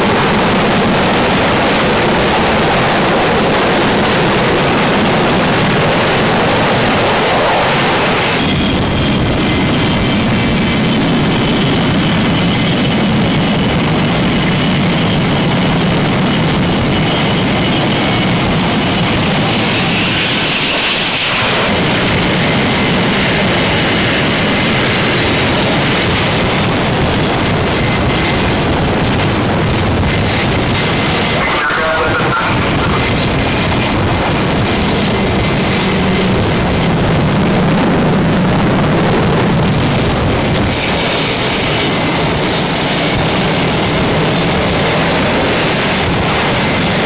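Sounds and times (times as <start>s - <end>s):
jet engines roaring: 0.0s - 47.0s
jet passing with high whistle: 1.9s - 13.2s, 16.3s - 26.6s, 30.1s - 36.3s.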